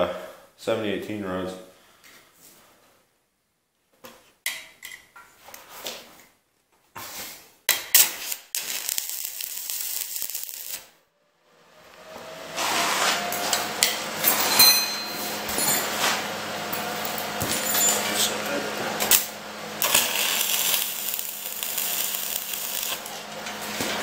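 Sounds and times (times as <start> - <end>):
welding arc sizzling: 7.7 - 11.0, 12.6 - 24.0.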